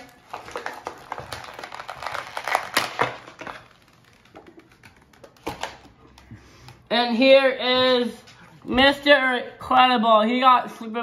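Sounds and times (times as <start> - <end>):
scissors cutting plastic packaging: 0.0 - 5.8
plastic rustling: 0.0 - 6.2.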